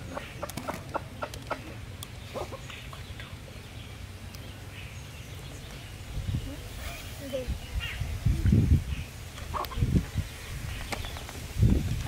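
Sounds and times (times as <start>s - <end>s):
chicken clucking: 0.0s - 2.8s, 9.5s - 9.9s.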